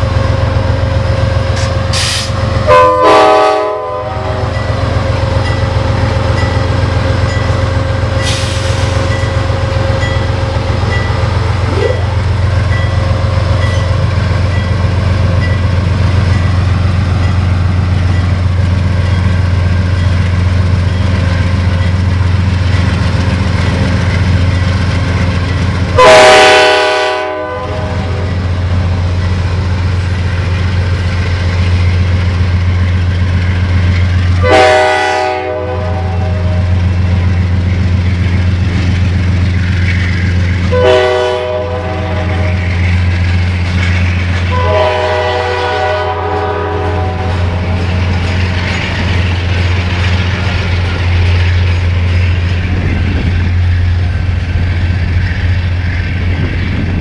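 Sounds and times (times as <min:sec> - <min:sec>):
diesel locomotive engine droning: 0:00.0 - 0:57.0
train air horn: 0:01.6 - 0:04.6, 0:26.0 - 0:28.2, 0:34.4 - 0:36.7, 0:40.7 - 0:42.6, 0:44.5 - 0:47.6.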